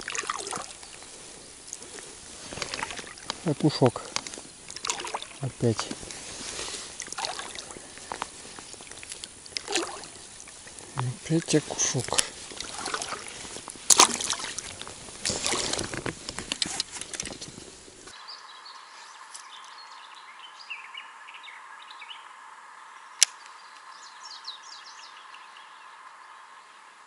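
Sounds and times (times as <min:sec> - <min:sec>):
birds singing: 0:00.0 - 0:15.8, 0:16.7 - 0:27.0
water splashing: 0:00.0 - 0:18.1
steady hiss: 0:00.0 - 0:27.0
sharp click: 0:23.2 - 0:23.9.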